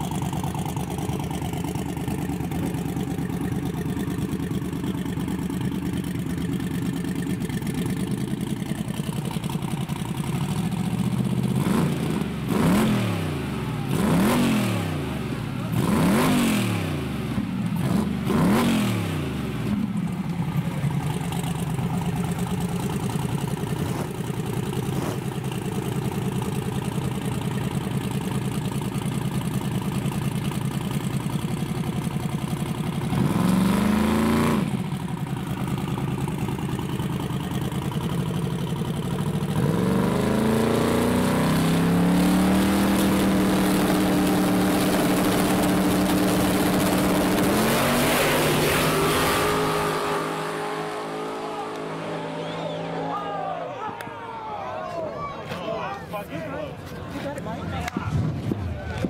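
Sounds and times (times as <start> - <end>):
drag-race engines idling: 0.0 - 59.0
engine revving: 11.4 - 19.9, 23.8 - 25.5, 33.0 - 35.0, 39.4 - 53.4.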